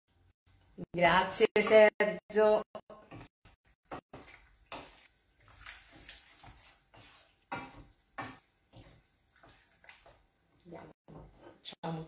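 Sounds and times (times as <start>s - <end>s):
wooden spoon scraping a pan: 3.9s - 10.3s.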